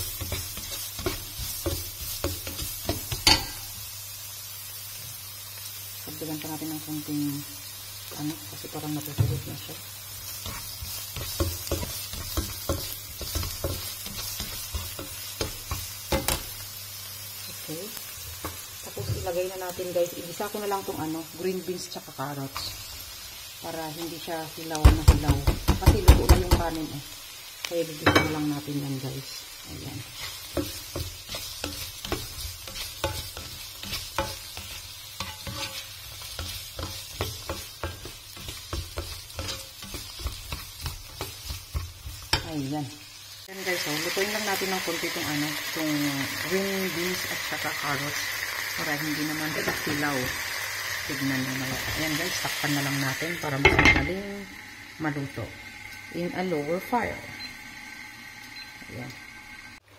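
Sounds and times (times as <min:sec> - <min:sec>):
spatula scraping a pan: 0:00.0 - 0:03.7, 0:10.2 - 0:16.6, 0:30.0 - 0:42.4
onion sizzling in hot oil: 0:00.0 - 0:59.9.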